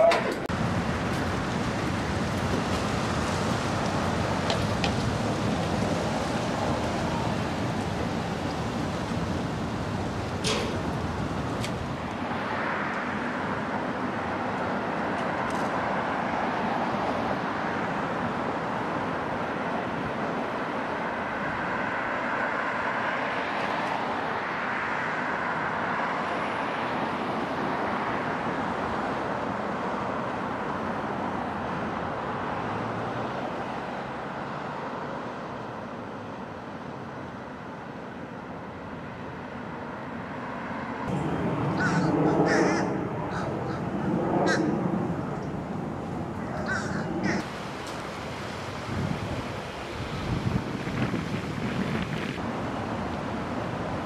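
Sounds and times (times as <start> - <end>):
electric streetcar running on track: 0.0 - 22.3, 41.0 - 54.0
street traffic noise: 0.0 - 54.0.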